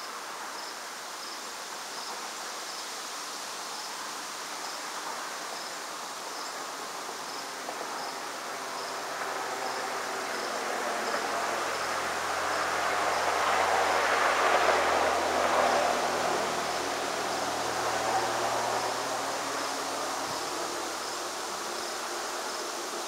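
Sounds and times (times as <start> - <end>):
soft outdoor hiss: 0.0 - 23.0
insect chirping: 0.6 - 23.0
rushing noise: 7.5 - 23.0.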